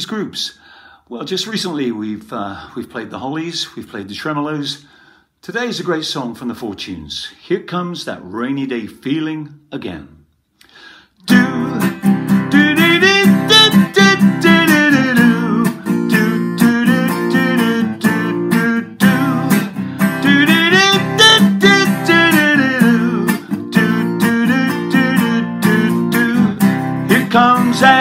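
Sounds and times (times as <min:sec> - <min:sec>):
acoustic guitar strumming: 0:11.3 - 0:28.0.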